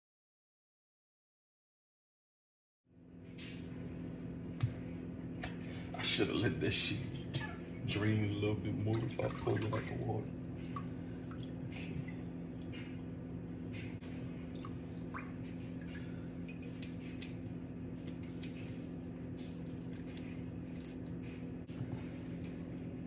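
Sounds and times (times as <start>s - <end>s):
steady low hum: 2.9s - 23.0s
wet squishing and dripping: 8.8s - 21.7s.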